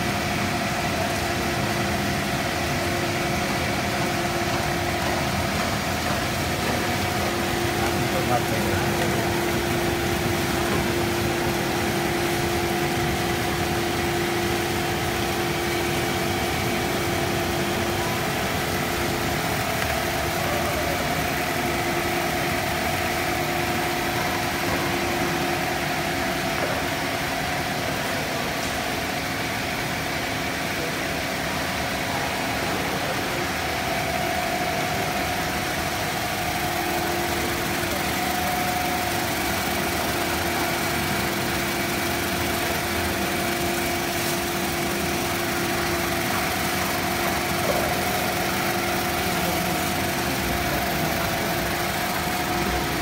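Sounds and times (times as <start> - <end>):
motor and roller hum: 0.0 - 53.0
extrusion machine drone: 32.0 - 53.0.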